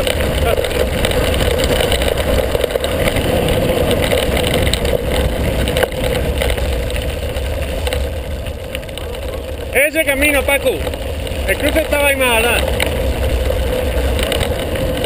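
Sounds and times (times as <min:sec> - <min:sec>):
wind on microphone: 0:00.0 - 0:09.7
tyres rolling over loose stones: 0:00.0 - 0:15.0.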